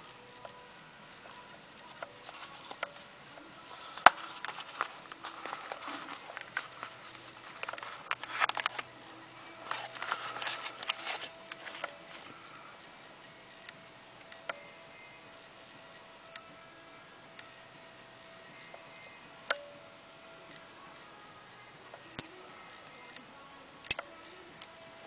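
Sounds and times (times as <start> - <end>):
pouch crinkling and rustling: 3.6 - 12.7.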